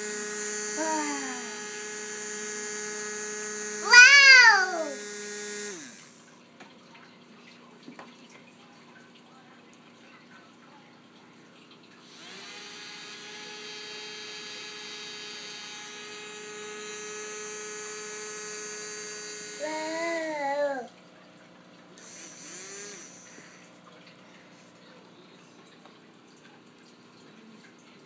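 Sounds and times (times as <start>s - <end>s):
toy electric motor whine: 0.0s - 6.3s, 12.0s - 20.9s, 22.0s - 23.8s
toddler vocal sound: 0.8s - 1.6s, 3.8s - 5.0s, 19.6s - 21.0s.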